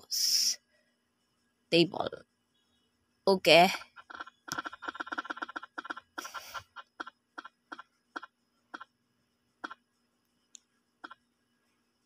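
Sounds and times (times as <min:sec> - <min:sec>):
spinning wheel ticking: 0:04.0 - 0:06.4.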